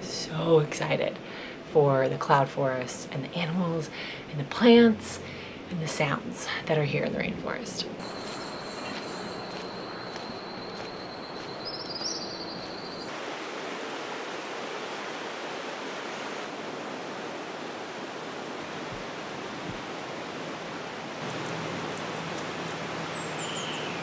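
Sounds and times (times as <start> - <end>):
thin high steady tone: 8.0 - 11.3
faint chirps: 8.0 - 13.1
river rushing: 13.0 - 24.0.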